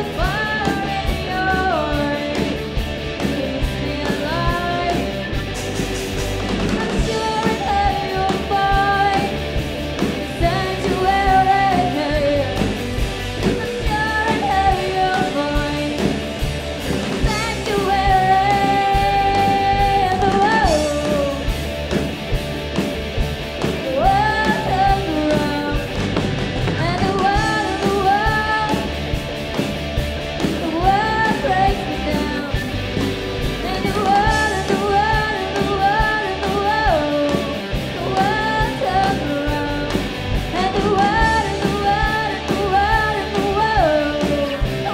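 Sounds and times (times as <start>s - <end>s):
woman singing lead: 0.0s - 21.7s, 23.7s - 29.6s, 30.4s - 44.9s
bass guitar: 0.0s - 44.9s
drums: 0.0s - 44.9s
electric guitars: 0.0s - 44.9s.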